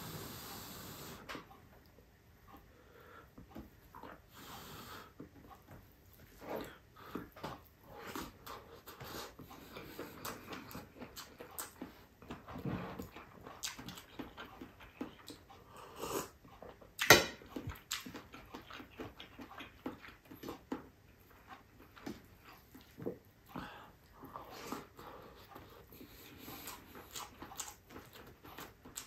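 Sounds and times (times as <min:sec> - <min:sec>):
wet chewing and lip smacks: 0:06.6 - 0:15.7, 0:16.3 - 0:29.0.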